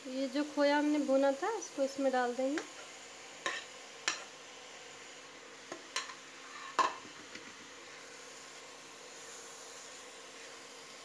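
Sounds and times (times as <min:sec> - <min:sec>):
faint hiss and hum: 0:00.0 - 0:11.0
metal spoon scraping a pan: 0:02.6 - 0:04.3, 0:05.7 - 0:07.0.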